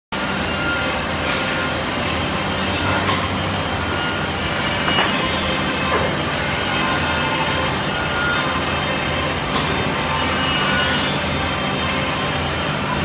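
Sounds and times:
band saw machine hum: 0.2 - 13.0.

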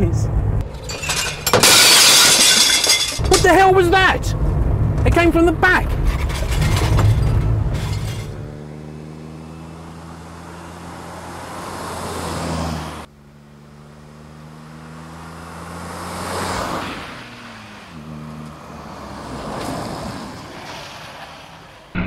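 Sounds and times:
van engine passing by: 7.3 - 21.9.

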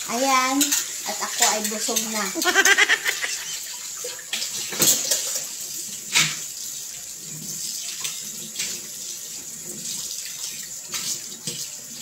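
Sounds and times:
dishes and cutlery clinking: 0.5 - 2.5, 4.3 - 6.5.

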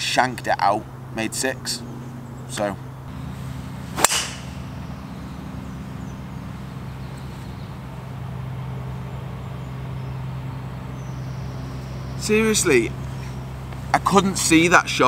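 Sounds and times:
steady low hum: 0.0 - 15.0
golf club striking ball: 3.7 - 5.4.

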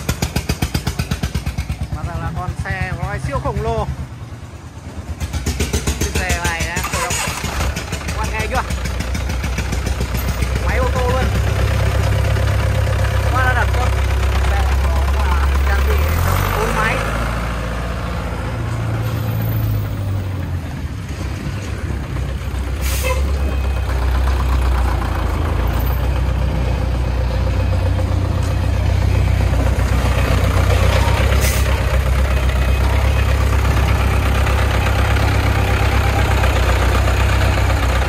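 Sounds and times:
truck diesel engine rumbling: 0.0 - 38.0
air brakes hissing: 22.7 - 23.4, 31.4 - 31.8.

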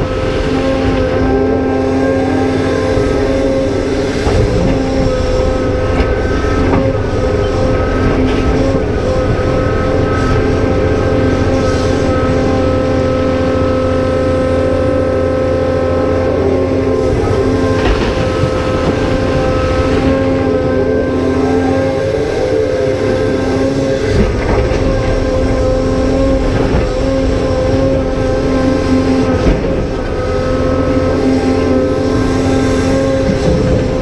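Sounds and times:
excavator diesel engine under load: 0.0 - 34.0
hydraulic pump whining: 0.0 - 34.0.

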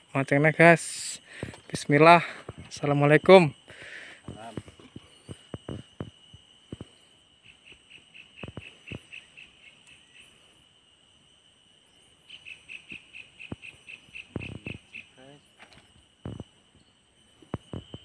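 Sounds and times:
insect high-pitched trill: 0.0 - 18.0
rapid insect chirps: 0.0 - 18.0.

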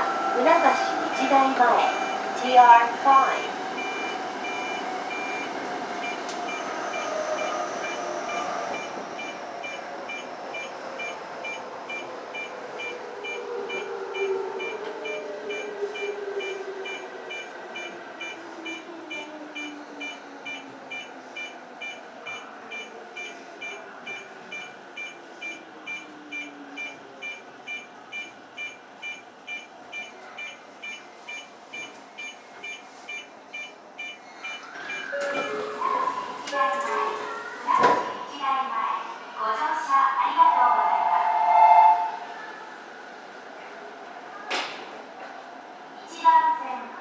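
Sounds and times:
train rumble: 0.0 - 32.3
high beeps: 0.6 - 2.2, 3.3 - 36.1.

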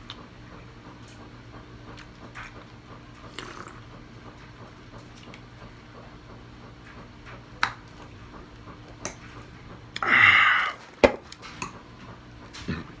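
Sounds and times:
man drinking and swallowing: 3.3 - 3.8.

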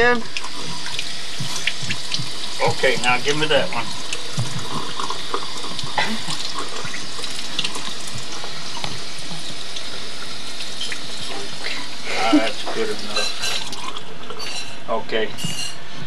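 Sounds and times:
tap water running: 0.0 - 15.8.

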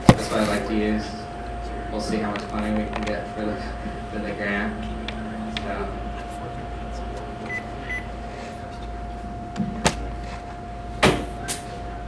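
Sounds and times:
electrical hum: 0.0 - 12.0.

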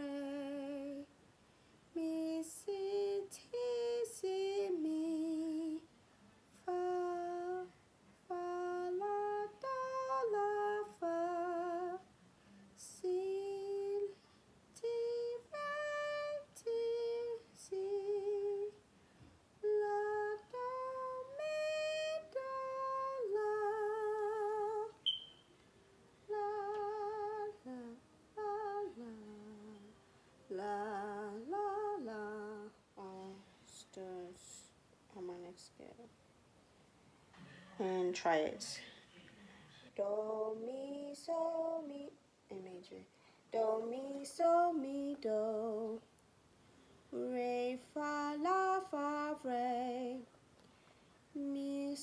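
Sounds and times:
woman singing unaccompanied: 0.0 - 1.2, 1.9 - 18.9, 19.6 - 25.2, 26.2 - 36.2, 39.8 - 46.2, 47.1 - 50.4, 51.3 - 52.0.

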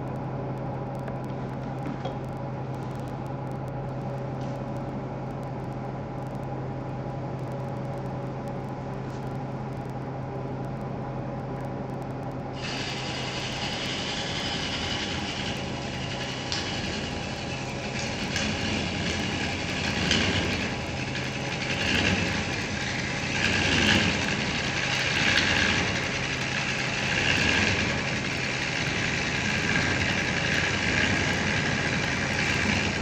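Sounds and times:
tool cutting spinning wood: 12.6 - 33.0
wood lathe humming: 12.6 - 33.0.

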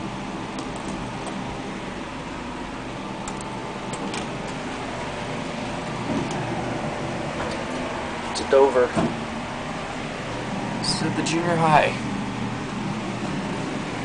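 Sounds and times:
elevator mechanical hum: 0.0 - 14.0.

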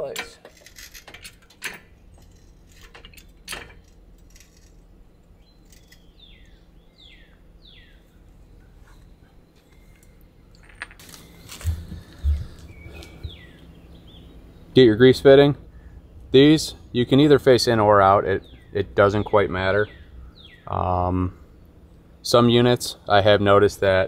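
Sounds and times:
bird chirping: 4.3 - 10.6, 11.2 - 22.1
faint metallic clinks and knocks: 9.6 - 13.1.

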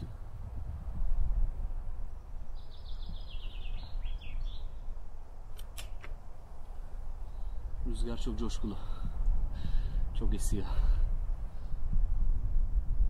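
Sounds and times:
wind buffeting microphone: 0.0 - 13.0
short sharp clicks: 5.5 - 6.2.

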